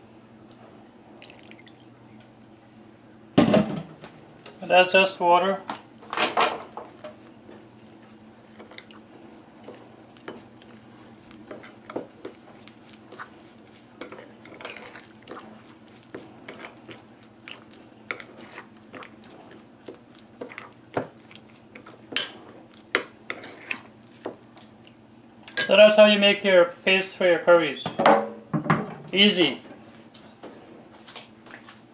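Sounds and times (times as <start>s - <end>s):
metal spoon stirring paste in bowl: 8.0s - 24.4s.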